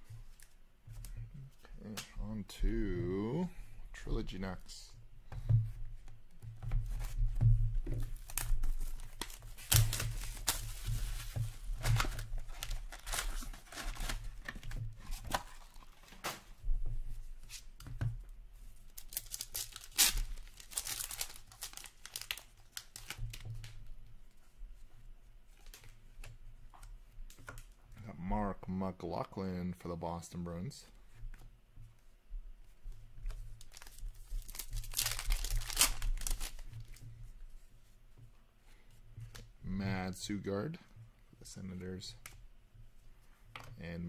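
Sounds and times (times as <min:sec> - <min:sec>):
wrappers tearing and crinkling: 0:08.2 - 0:14.3, 0:18.9 - 0:23.4, 0:33.6 - 0:36.9.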